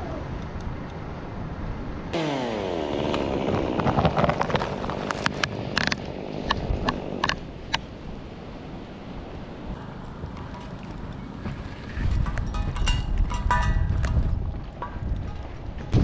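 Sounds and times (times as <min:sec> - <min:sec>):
chainsaw cutting wood: 0:02.2 - 0:07.4.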